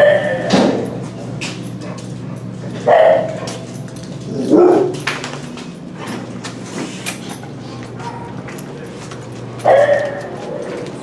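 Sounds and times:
dogs barking: 0:00.0 - 0:05.2, 0:09.4 - 0:11.0
steady hum: 0:00.0 - 0:11.0.

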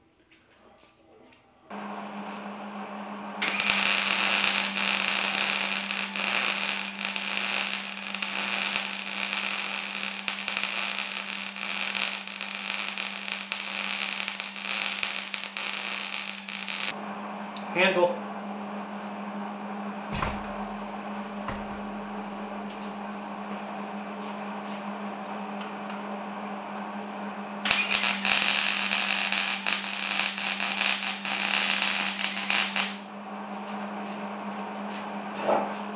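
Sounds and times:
steady low hum: 0:01.6 - 0:35.9
welding arc crackling: 0:03.4 - 0:16.9, 0:27.6 - 0:33.0.

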